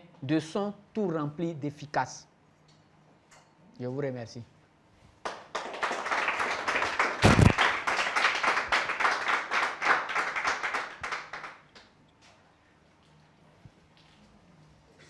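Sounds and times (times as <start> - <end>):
audience applauding: 5.2 - 11.8.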